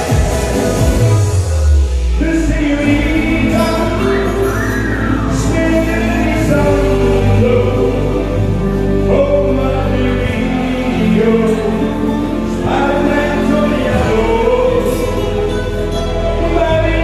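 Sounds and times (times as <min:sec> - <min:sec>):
live party music with singing: 0:00.0 - 0:17.0
sustained bass line: 0:00.0 - 0:17.0.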